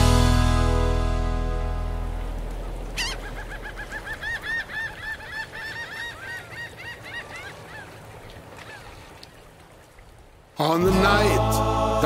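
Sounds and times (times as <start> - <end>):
gulls yelping calls: 2.3 - 9.0.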